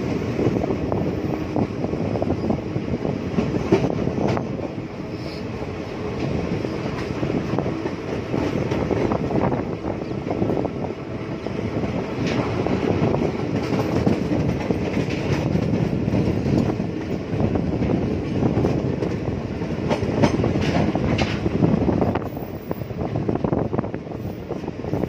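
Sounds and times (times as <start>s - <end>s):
train wheels rumbling on rails: 0.0s - 25.0s
wheels clacking over rail joints: 11.4s - 21.7s.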